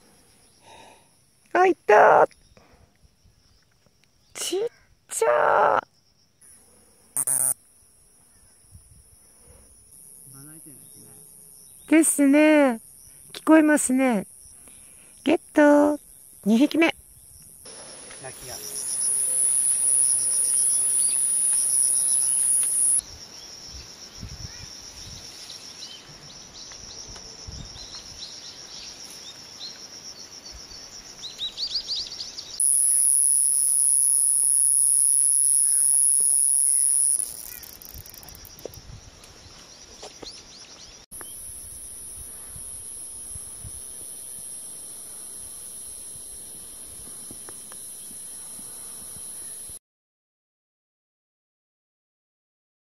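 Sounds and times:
faint steady high buzz: 0:07.2 - 0:07.7, 0:32.6 - 0:37.4
cicada high-pitched buzz: 0:07.2 - 0:09.2, 0:09.8 - 0:25.6, 0:32.6 - 0:39.4, 0:41.2 - 0:49.8.

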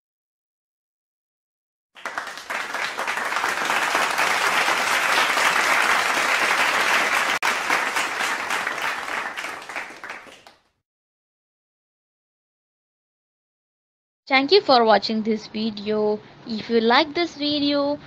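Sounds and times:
crowd applause: 0:02.0 - 0:10.7.

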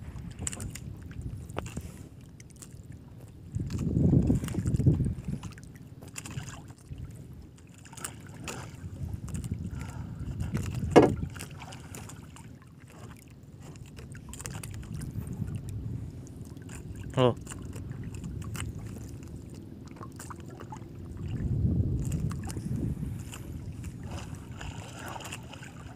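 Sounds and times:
water lapping against hull: 0:00.0 - 0:25.9
knocks on boat: 0:10.8 - 0:11.4.

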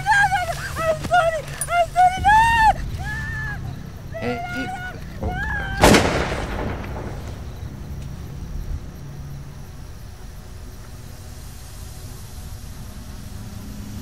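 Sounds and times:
loud bang: 0:05.2 - 0:08.0.

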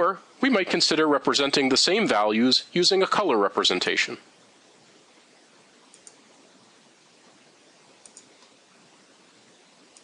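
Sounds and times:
low steady hiss: 0:00.0 - 0:10.0
computer mouse clicks: 0:05.9 - 0:06.2, 0:08.0 - 0:08.6.

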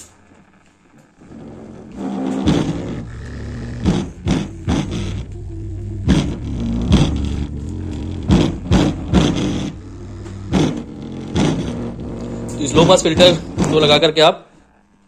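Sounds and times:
thudding bass beat: 0:02.4 - 0:14.0
deep bass line from subwoofer: 0:02.5 - 0:13.9.

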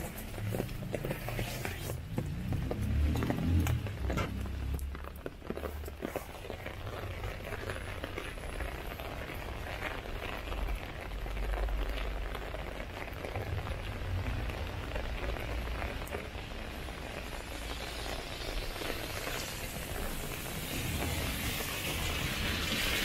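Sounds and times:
rain on a wet street: 0:00.0 - 0:23.0
low rumble: 0:13.3 - 0:16.8
hiss: 0:17.1 - 0:23.0.

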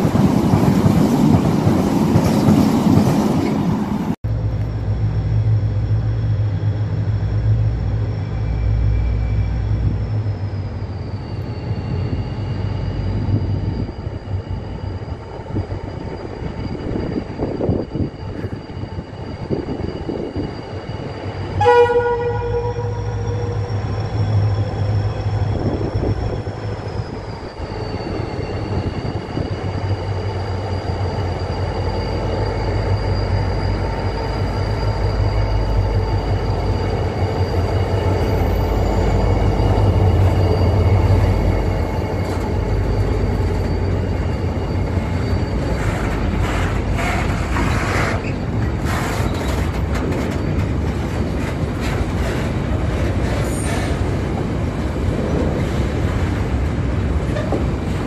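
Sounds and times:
locomotive engine rumble: 0:00.0 - 0:58.0
train horn blast: 0:21.6 - 0:23.7.

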